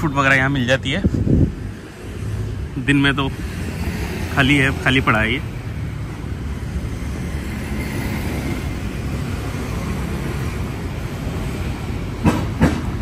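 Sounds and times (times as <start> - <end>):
low traffic rumble: 0.0 - 13.0
wind on microphone: 1.0 - 2.2.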